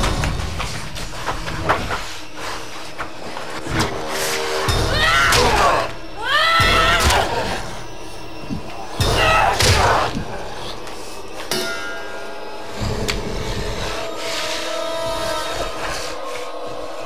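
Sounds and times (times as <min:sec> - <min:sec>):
swooping ringing tones: 0:02.7 - 0:16.2
clanging hits: 0:06.6 - 0:10.4, 0:11.3 - 0:13.3.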